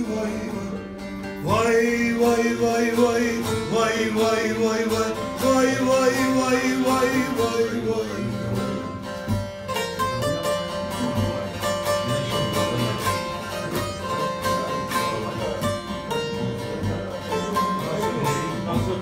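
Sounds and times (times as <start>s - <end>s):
plucked lute playing fast: 0.0s - 19.0s.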